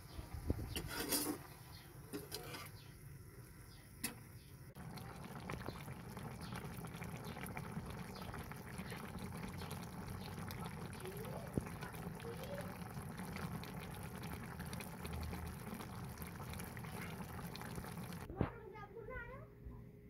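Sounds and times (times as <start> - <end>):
broth bubbling in a wok: 3.7 - 18.3.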